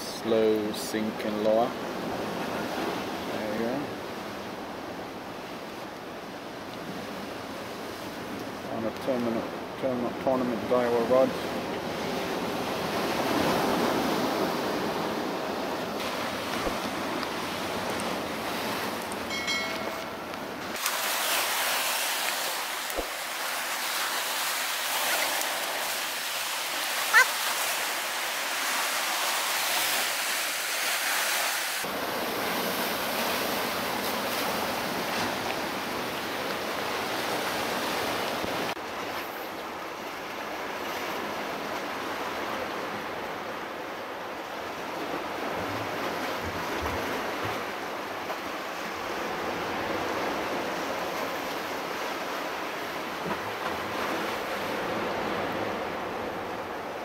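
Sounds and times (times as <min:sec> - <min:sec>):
surf breaking over rocks: 0:11.0 - 0:36.1.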